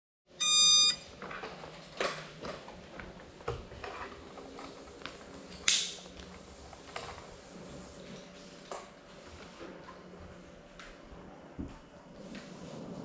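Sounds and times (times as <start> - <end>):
electronic beep: 0.4 - 1.1.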